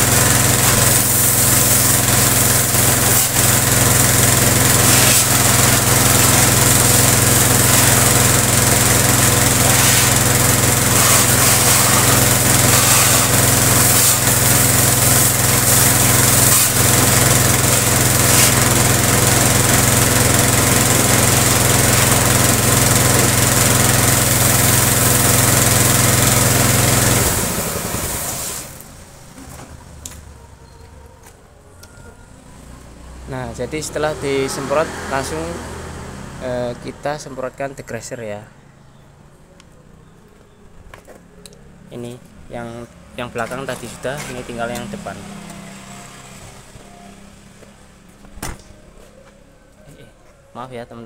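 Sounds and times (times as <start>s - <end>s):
water jet hissing: 0.0s - 28.8s
pressure washer motor hum: 0.0s - 29.7s, 42.9s - 48.1s.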